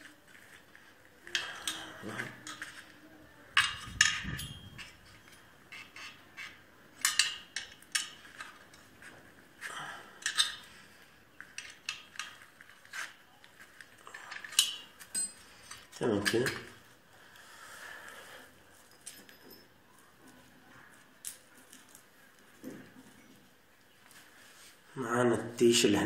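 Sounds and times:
metal tools clinking on casing: 3.6 - 9.0, 10.2 - 10.8, 11.4 - 16.7, 18.8 - 20.4.

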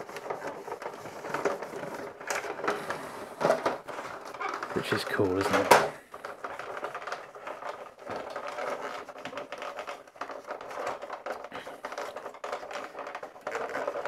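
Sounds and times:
cloth rubbing on plastic: 0.0 - 5.7.

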